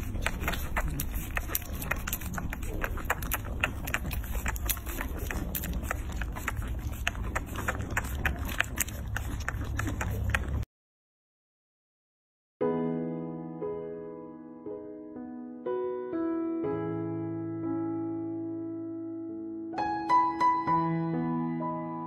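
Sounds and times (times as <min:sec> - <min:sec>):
puppies suckling wet clicks: 0:00.0 - 0:10.7.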